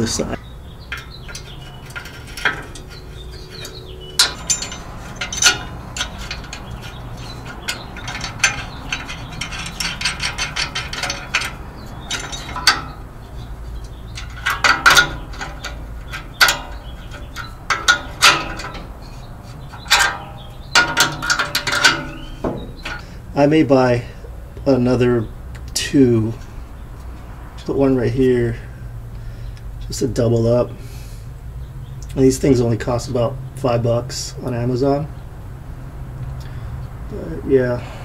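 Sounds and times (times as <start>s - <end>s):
metallic clinks: 0.6s - 23.2s
ratchet wrench clicking: 0.9s - 19.0s.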